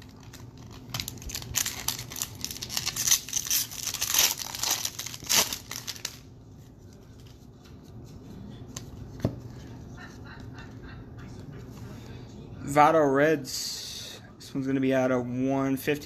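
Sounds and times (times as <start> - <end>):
wrapper tearing and crinkling: 0.0 - 6.3.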